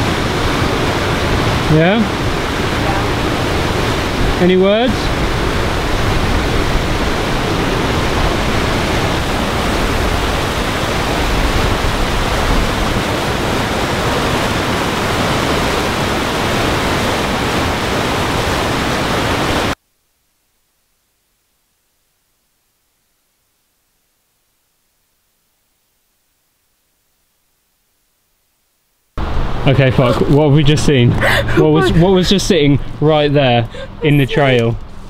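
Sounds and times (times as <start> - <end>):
river rapids rushing over rocks: 0.0 - 19.8.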